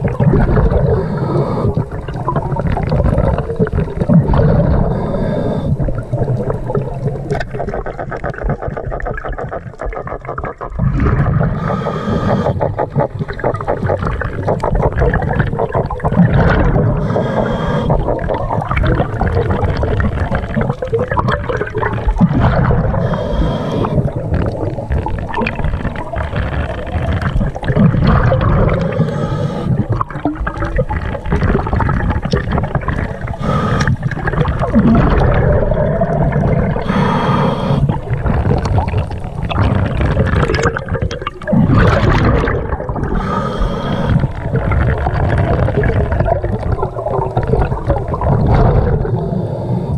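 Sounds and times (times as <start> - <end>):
gurgling exhaled bubbles: 0.0 - 49.9
regulator inhalation hiss: 11.6 - 12.6, 17.0 - 18.0, 23.0 - 24.1, 28.8 - 29.8, 33.4 - 34.1, 36.8 - 38.0, 43.2 - 44.4.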